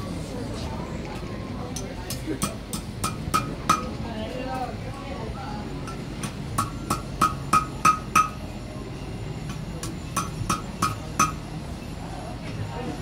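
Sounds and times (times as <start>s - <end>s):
hammer ringing on anvil: 5.9s - 8.5s, 9.5s - 11.5s.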